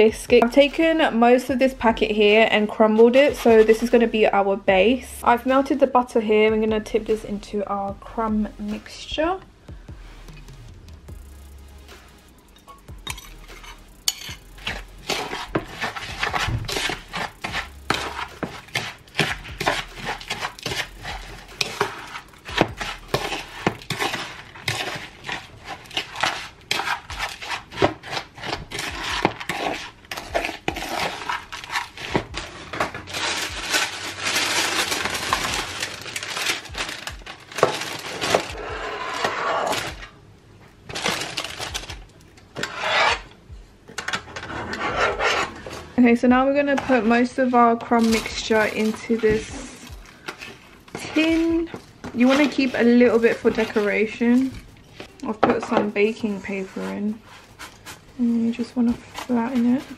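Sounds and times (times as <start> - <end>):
spoon stirring in a bowl: 12.6 - 33.9, 47.9 - 59.9.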